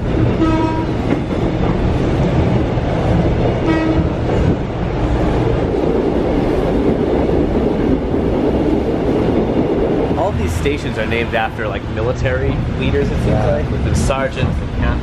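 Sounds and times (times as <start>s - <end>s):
electric train rumble: 0.0s - 15.0s.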